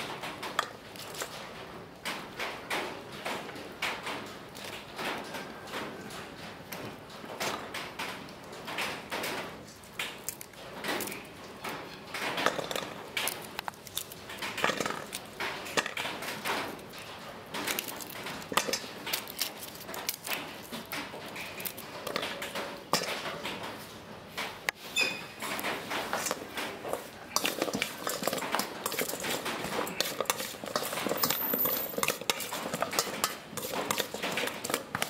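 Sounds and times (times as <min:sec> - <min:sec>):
vegetables knocking in metal bowl: 0:12.1 - 0:16.8, 0:25.5 - 0:35.0.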